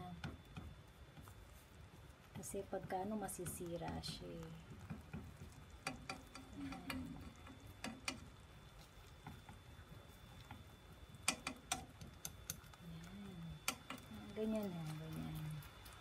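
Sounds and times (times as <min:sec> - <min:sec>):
chopsticks clicking on frying pan: 0:03.2 - 0:08.3, 0:11.2 - 0:12.7, 0:13.6 - 0:15.4.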